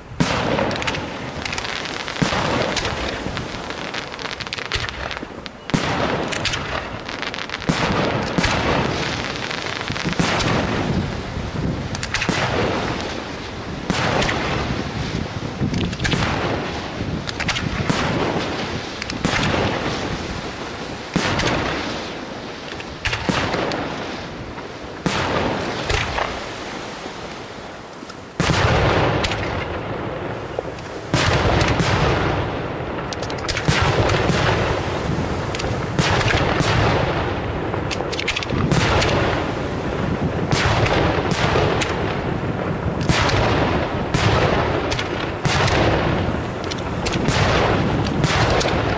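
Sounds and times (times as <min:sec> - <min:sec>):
firework shells bursting: 0:00.2 - 0:11.3, 0:11.9 - 0:20.3, 0:33.0 - 0:48.9.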